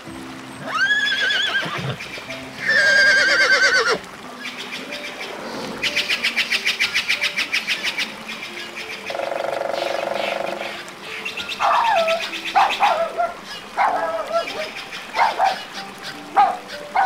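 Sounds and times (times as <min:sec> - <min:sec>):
horse whinnying: 0:00.6 - 0:02.0, 0:02.6 - 0:04.0.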